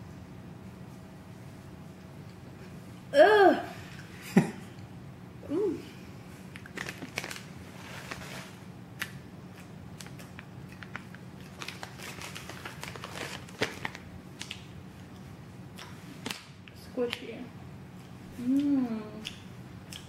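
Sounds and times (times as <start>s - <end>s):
person groaning: 3.1s - 3.8s
plastic bag crinkling: 6.5s - 8.6s, 10.0s - 14.6s.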